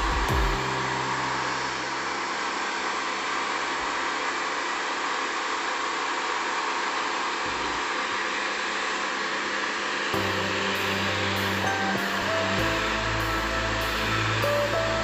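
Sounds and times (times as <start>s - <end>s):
pressure washer spraying on paving: 10.2s - 15.0s.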